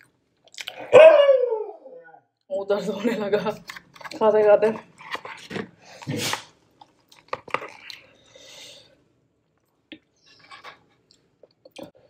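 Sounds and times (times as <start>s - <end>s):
chewing: 6.8s - 8.3s.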